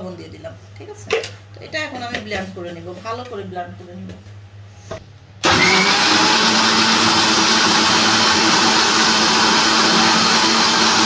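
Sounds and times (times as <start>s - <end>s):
blender whirring: 5.4s - 11.0s.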